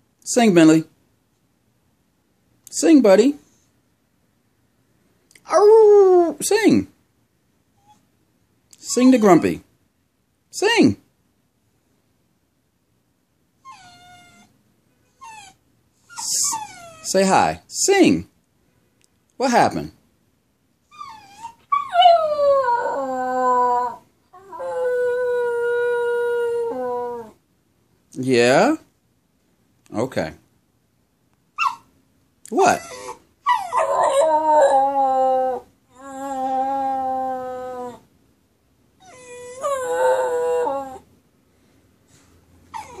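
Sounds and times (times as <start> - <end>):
dog howling: 21.0 - 27.4, 32.8 - 38.0, 39.0 - 41.1.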